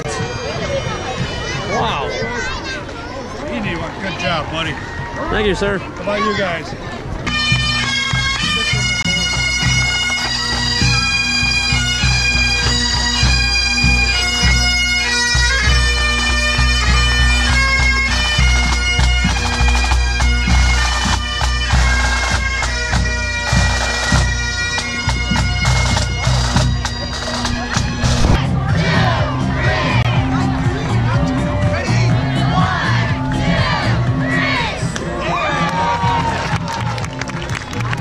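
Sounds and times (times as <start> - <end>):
bagpipes playing a tune: 7.2 - 34.6
bass drum beating: 25.0 - 34.6.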